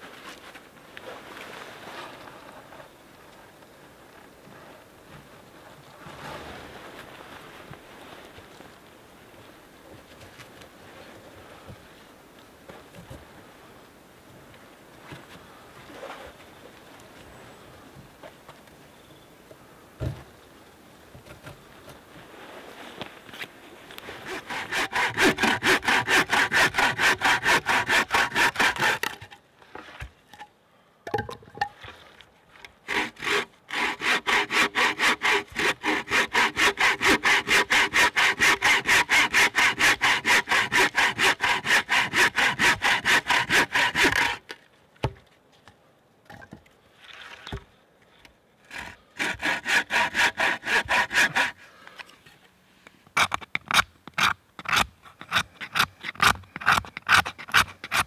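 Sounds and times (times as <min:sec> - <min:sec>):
saw cutting through log: 0:24.2 - 0:29.2, 0:32.8 - 0:44.4, 0:48.7 - 0:51.6, 0:53.2 - 0:58.0.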